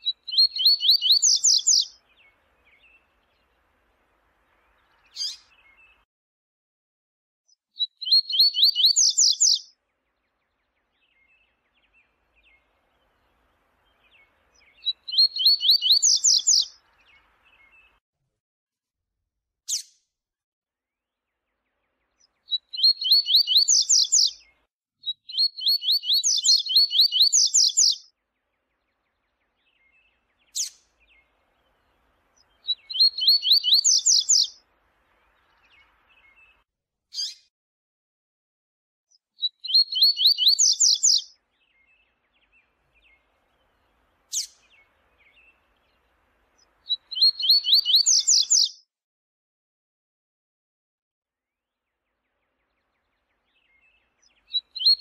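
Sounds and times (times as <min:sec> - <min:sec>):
bird singing rapid high notes: 0:08.0 - 0:09.6, 0:14.2 - 0:16.7, 0:25.2 - 0:28.0, 0:32.5 - 0:34.6, 0:39.4 - 0:43.2, 0:46.9 - 0:48.8.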